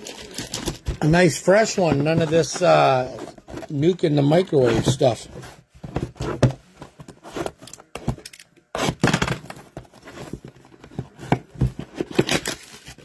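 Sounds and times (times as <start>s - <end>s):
cardboard tearing: 12.0s - 13.0s.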